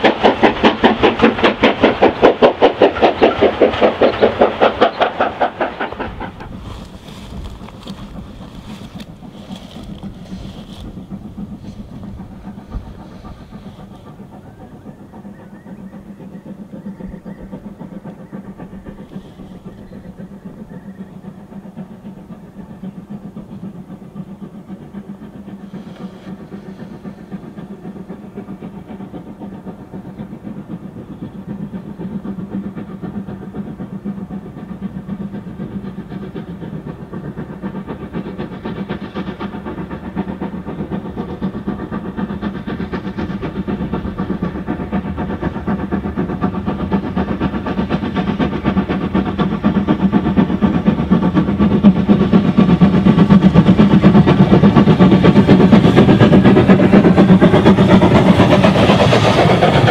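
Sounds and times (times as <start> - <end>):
steam locomotive exhaust beat: 0.0 - 59.9.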